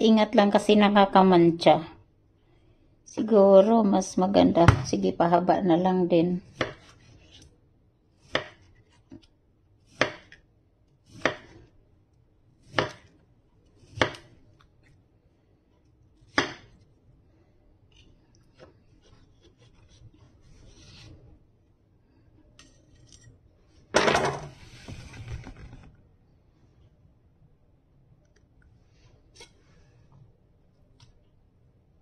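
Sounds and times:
knife chopping on cutting board: 0:06.5 - 0:07.1, 0:08.2 - 0:09.0, 0:09.9 - 0:10.4, 0:11.1 - 0:11.7, 0:12.6 - 0:13.1, 0:13.8 - 0:14.3, 0:16.3 - 0:16.8
knife scraping board: 0:18.9 - 0:21.3.

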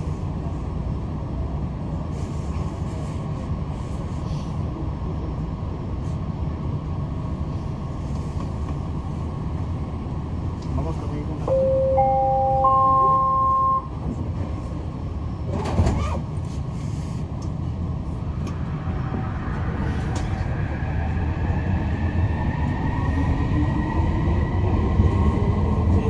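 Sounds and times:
train door chime: 0:11.5 - 0:14.0.

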